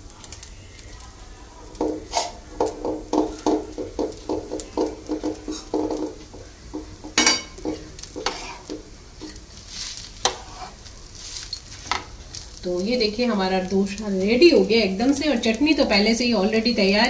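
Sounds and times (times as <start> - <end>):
utensil clicking against pan: 1.7 - 9.4
utensil scraping pan: 1.8 - 12.1.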